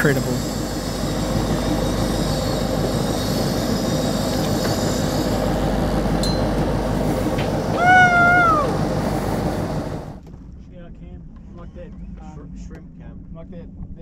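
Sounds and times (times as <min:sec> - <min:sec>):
high whine dropping in pitch: 0:00.0 - 0:10.2
boat engine rumble: 0:00.0 - 0:10.5.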